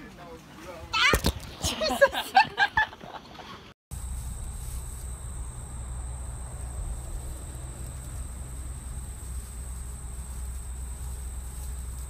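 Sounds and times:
insects droning: 0:03.9 - 0:12.0
low steady rumble: 0:03.9 - 0:12.0.

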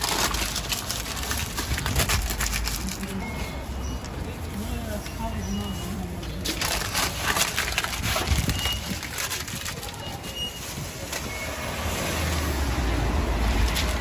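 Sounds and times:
paper crinkling and rustling: 0:00.0 - 0:03.6, 0:04.5 - 0:11.3, 0:13.4 - 0:14.0.

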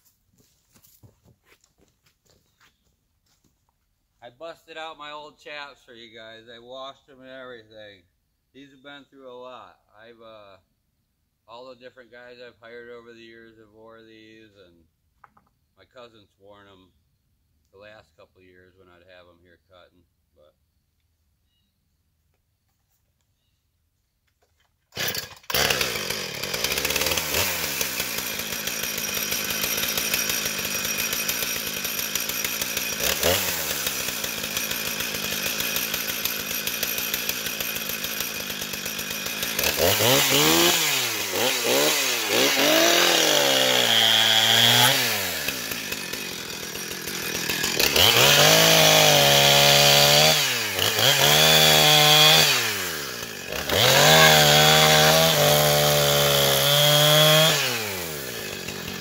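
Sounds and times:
chainsaw cutting wood: 0:24.5 - 0:59.0
chainsaw idling and revving: 0:24.9 - 0:59.0.

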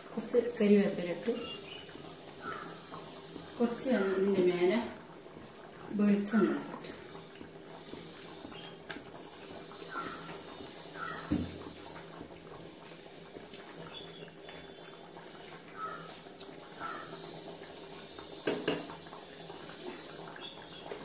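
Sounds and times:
curry simmering with bubbling hiss: 0:00.0 - 0:21.0
knock: 0:11.3 - 0:11.6.

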